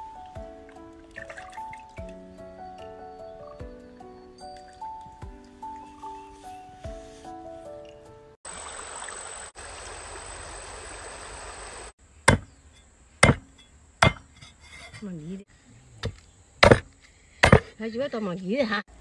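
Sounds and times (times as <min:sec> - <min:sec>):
stream water rushing: 0:08.5 - 0:11.9
cleaver chopping on wooden block: 0:12.3 - 0:12.5, 0:13.2 - 0:14.3, 0:16.0 - 0:17.7.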